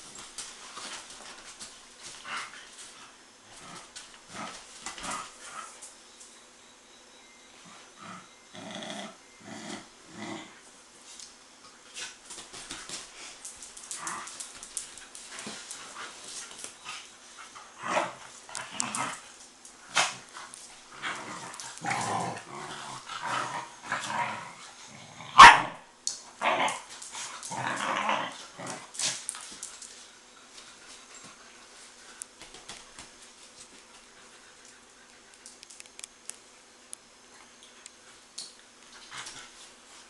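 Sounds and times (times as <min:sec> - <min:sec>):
young dogs growling: 0:07.8 - 0:10.6, 0:17.7 - 0:19.3, 0:19.9 - 0:25.5, 0:26.4 - 0:29.2
short barks and yips: 0:25.4 - 0:25.8.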